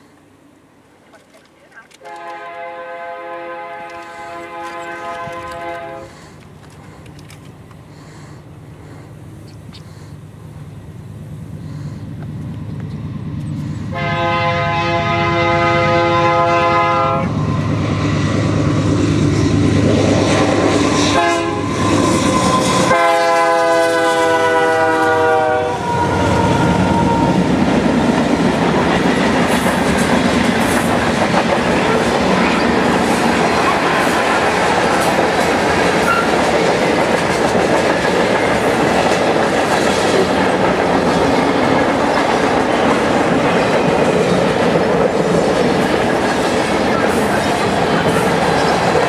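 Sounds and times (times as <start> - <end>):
diesel locomotive engines rumbling: 0.0 - 49.0
train air horn: 2.0 - 6.3, 13.9 - 17.6, 20.2 - 27.5
train wheels clattering on rails: 26.6 - 49.0.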